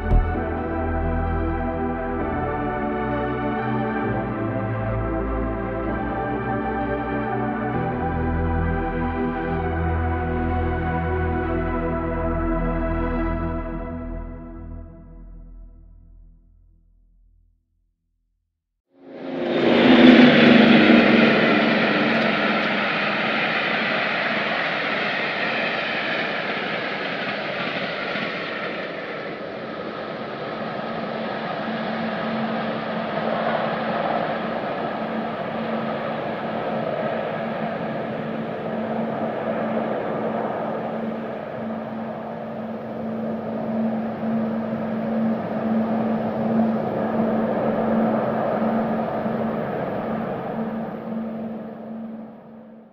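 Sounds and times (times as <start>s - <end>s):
mechanical engine drone: 19.2s - 29.0s.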